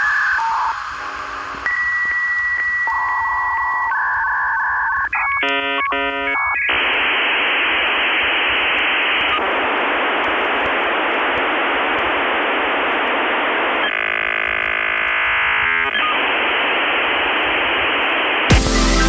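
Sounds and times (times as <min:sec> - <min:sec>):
loud static hiss: 0:00.0 - 0:19.0
steady buzzing tone: 0:05.2 - 0:19.0
electronic music with heavy beat: 0:18.4 - 0:19.0.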